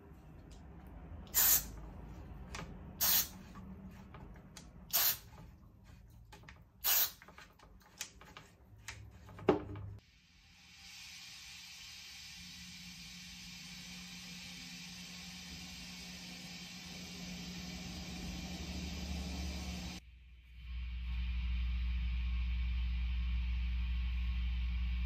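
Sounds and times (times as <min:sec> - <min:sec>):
aerosol spray hissing: 0:01.3 - 0:01.8, 0:03.0 - 0:03.4, 0:04.9 - 0:05.3, 0:06.8 - 0:07.2.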